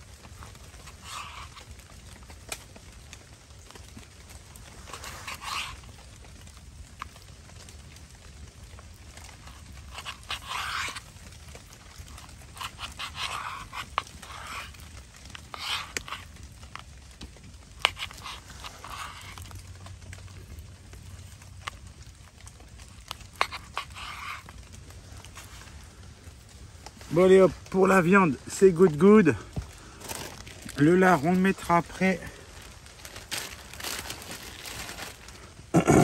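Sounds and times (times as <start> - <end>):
knife rasping through meat: 4.9 - 5.8, 9.6 - 11.0, 12.1 - 16.3, 17.8 - 19.5, 23.1 - 24.5.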